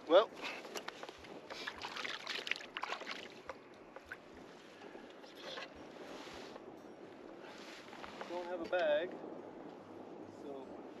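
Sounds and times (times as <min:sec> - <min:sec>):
water lapping against hull: 0:00.3 - 0:06.6.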